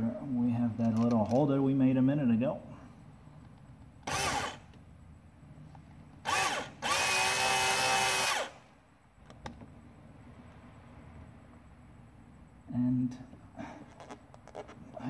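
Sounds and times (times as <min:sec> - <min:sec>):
cordless drill driving screw: 0:04.0 - 0:04.7, 0:06.2 - 0:08.6.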